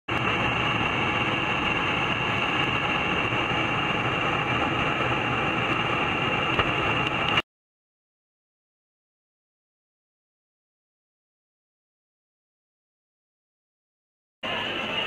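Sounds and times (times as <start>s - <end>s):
engine and airflow rush: 0.1s - 7.4s
thin high whine: 0.1s - 7.4s, 14.4s - 15.0s.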